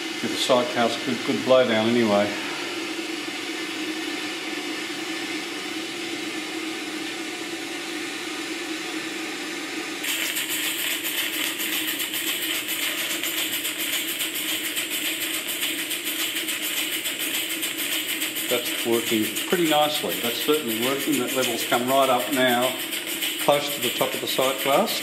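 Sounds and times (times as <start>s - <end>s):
steam boiler hiss and hum: 0.0s - 25.0s
steam pump beating: 10.0s - 25.0s.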